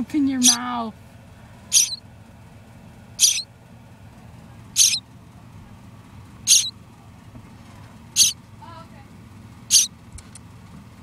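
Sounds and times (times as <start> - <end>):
small animal hissy calls: 1.7 - 2.0, 3.2 - 3.5, 4.8 - 5.0, 6.5 - 6.7, 8.2 - 8.4.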